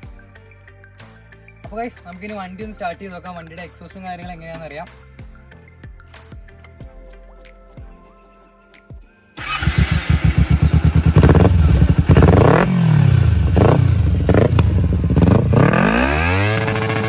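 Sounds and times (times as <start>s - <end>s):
motorcycle engine revving: 9.4s - 17.0s
motorcycle engine starting: 9.4s - 17.0s.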